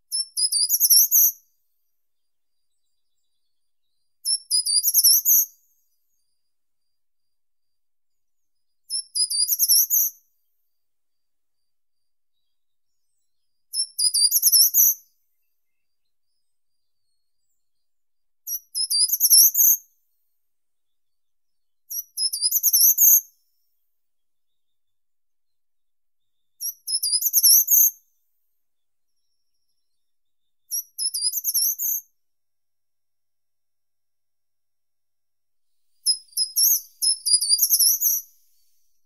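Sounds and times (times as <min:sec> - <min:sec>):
bird singing high phrases: 0:00.1 - 0:01.4, 0:02.5 - 0:06.2, 0:08.4 - 0:10.2, 0:12.4 - 0:17.8, 0:18.4 - 0:19.8, 0:21.0 - 0:23.3, 0:26.4 - 0:28.0, 0:29.1 - 0:32.1, 0:35.9 - 0:39.0.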